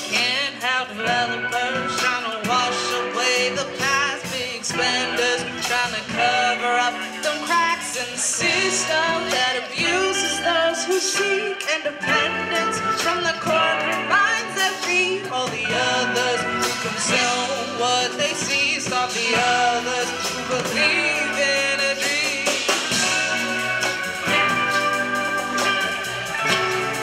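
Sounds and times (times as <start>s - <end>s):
live band playing: 0.0s - 27.0s
person singing: 0.0s - 27.0s
drum hits: 18.5s - 27.0s.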